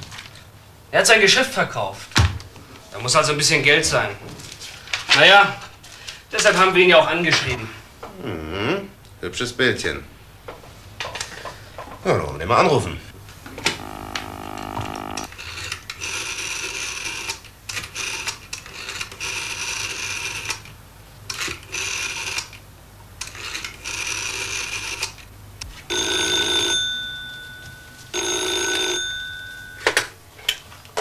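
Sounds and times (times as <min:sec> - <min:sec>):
rotary dial whirring: 0:13.1 - 0:17.3
dial tone: 0:13.6 - 0:15.3
telephone bell ringing: 0:13.7 - 0:15.3, 0:25.9 - 0:30.2.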